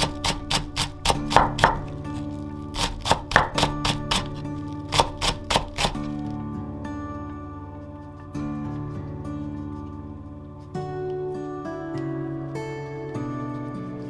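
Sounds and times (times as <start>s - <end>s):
knife chopping on wooden board: 0.0s - 1.9s, 2.8s - 6.0s
gentle guitar music: 0.0s - 14.0s.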